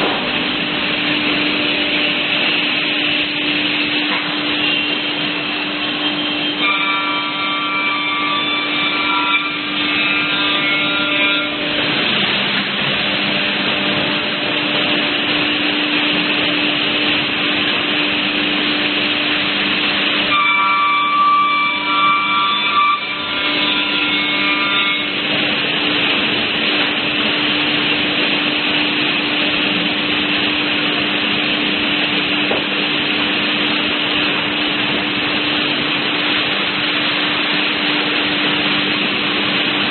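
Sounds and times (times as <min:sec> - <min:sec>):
panel saw running: 0:00.0 - 0:27.4
saw whine cutting wood: 0:00.1 - 0:26.0.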